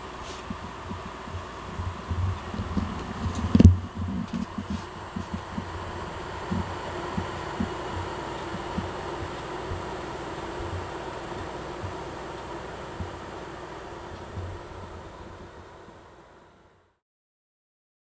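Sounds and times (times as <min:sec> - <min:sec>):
soft low thumps: 0:00.0 - 0:13.4
faint hum: 0:00.0 - 0:17.0.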